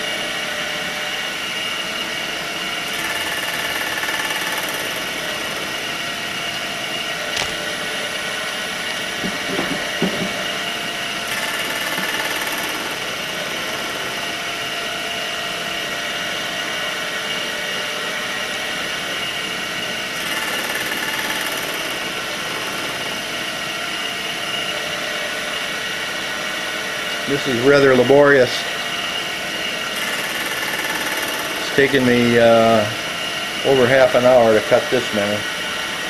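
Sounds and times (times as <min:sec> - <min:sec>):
milling machine cutting metal: 0:00.0 - 0:36.0
sharp click: 0:07.3 - 0:07.6.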